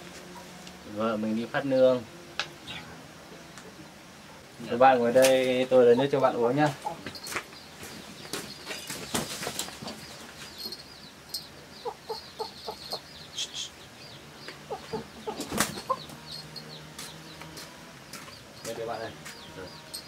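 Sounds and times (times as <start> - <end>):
chickens clucking: 0.0 - 20.0
high peeping chirps: 5.7 - 20.0.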